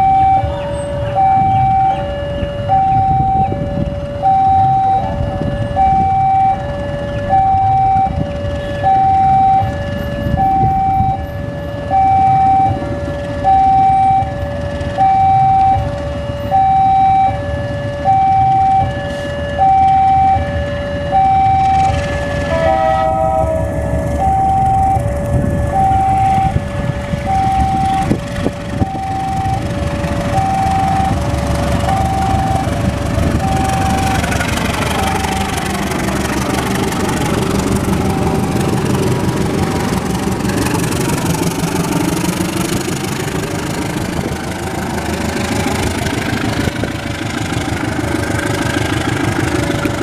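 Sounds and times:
two-tone warning signal: 0.0 - 39.0
diesel locomotive rumbling: 0.0 - 50.0.

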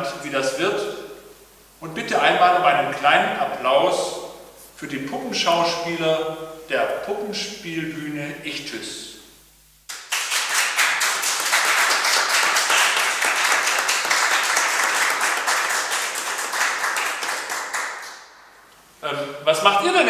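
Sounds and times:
audience applauding: 9.9 - 18.4.

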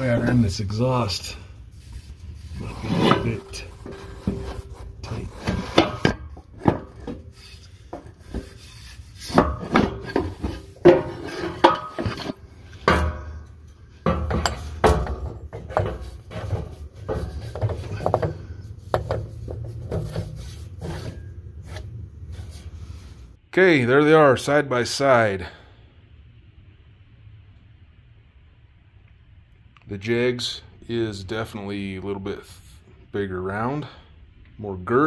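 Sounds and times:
metal parts scraping: 0.0 - 23.1
metal parts clunking and knocking: 2.0 - 22.6.

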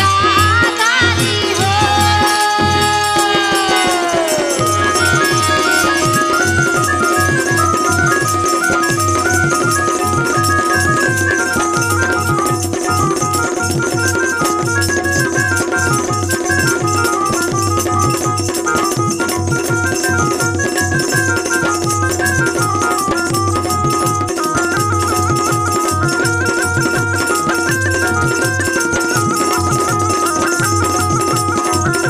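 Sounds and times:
held drone note: 0.0 - 14.0
jingling percussion: 0.0 - 32.0.

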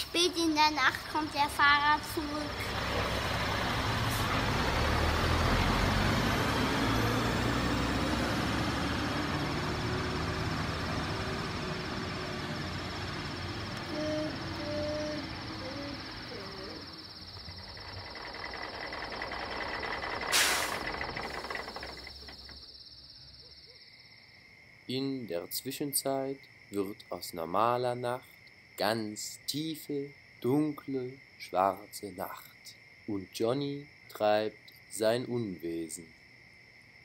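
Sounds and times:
toy truck engine rumble and whine: 1.0 - 23.4
air-brake hiss: 20.0 - 21.8.

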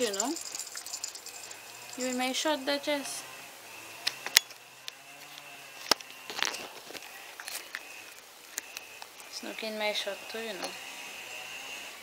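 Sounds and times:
handling noise clicks and rustling: 0.0 - 2.4.

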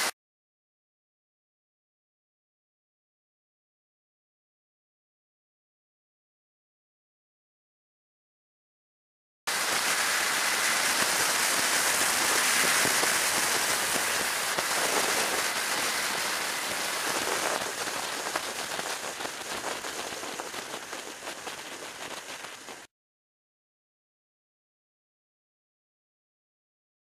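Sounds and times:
wind rushing on microphone: 9.6 - 22.9.

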